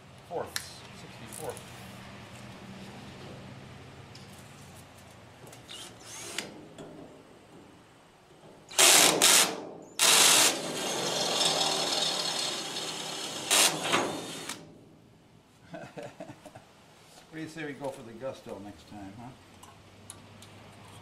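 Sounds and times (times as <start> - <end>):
power drill boring through steel: 8.7 - 14.6.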